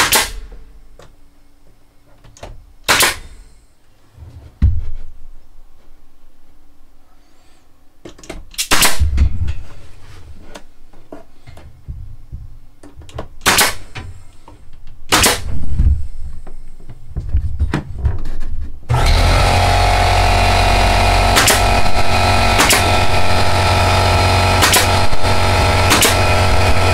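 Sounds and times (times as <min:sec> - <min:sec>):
power tool running: 0:18.9 - 0:26.9
loud sharp strikes: 0:21.3 - 0:23.6, 0:24.6 - 0:26.9.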